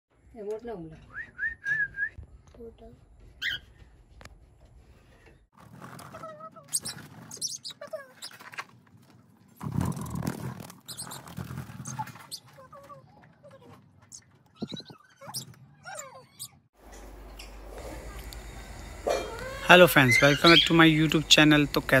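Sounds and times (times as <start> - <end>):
birds chirping and chattering: 3.4 - 3.7, 6.2 - 8.6, 10.9 - 22.0.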